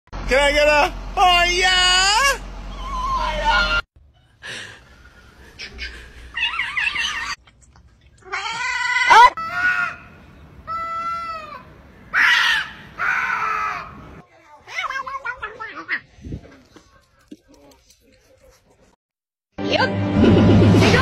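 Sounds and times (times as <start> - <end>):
cats meowing and yowling: 6.3 - 7.4.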